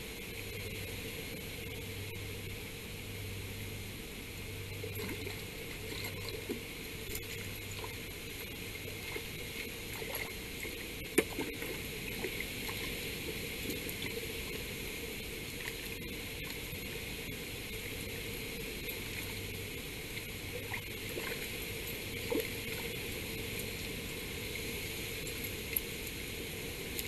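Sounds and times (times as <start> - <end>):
water sloshing and splashing: 4.8 - 14.8, 19.0 - 23.8.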